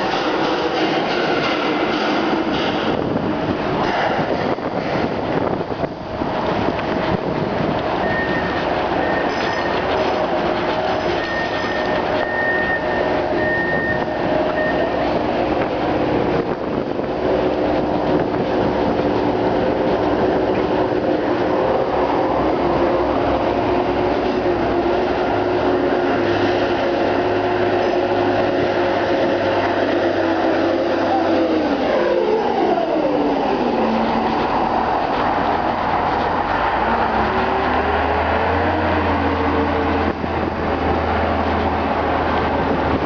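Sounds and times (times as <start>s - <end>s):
heavy machinery rumble: 0.0s - 43.0s
low engine drone: 0.0s - 43.0s.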